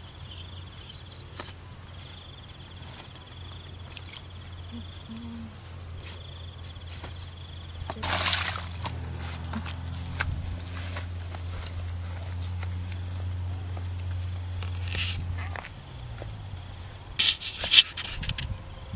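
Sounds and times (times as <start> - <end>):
insects trilling: 0.0 - 18.9
low steady hum: 0.0 - 18.9
short noisy rustles: 17.2 - 18.6.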